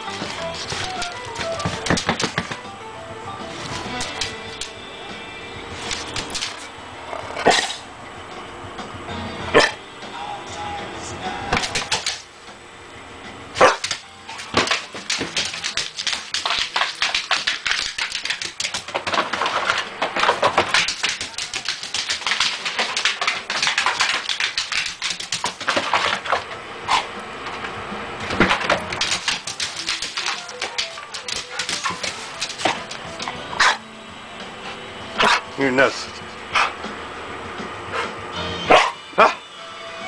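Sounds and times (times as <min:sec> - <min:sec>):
puppy paws scrabbling and clicking: 0:00.0 - 0:02.7, 0:03.6 - 0:04.7, 0:05.8 - 0:06.7, 0:11.5 - 0:12.3, 0:13.6 - 0:27.7, 0:28.3 - 0:33.8
dog noises: 0:09.5 - 0:09.8, 0:13.6 - 0:14.0, 0:26.8 - 0:27.2, 0:31.1 - 0:33.9, 0:34.6 - 0:35.5, 0:36.5 - 0:36.8, 0:37.9 - 0:39.4.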